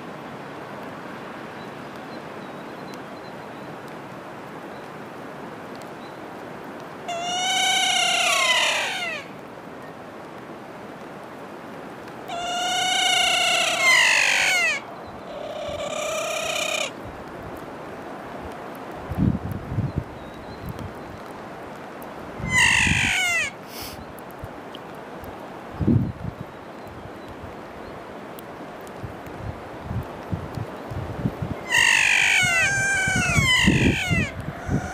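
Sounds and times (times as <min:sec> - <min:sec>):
steady background hiss: 0:00.0 - 0:34.9
parrot calls: 0:07.1 - 0:09.3, 0:12.3 - 0:16.9, 0:22.4 - 0:23.6, 0:31.6 - 0:34.9.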